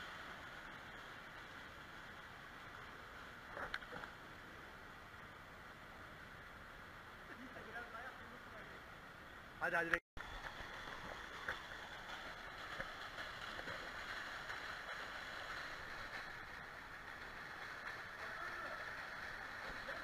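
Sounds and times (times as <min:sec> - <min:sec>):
water rushing into splash pool: 0:10.2 - 0:20.0.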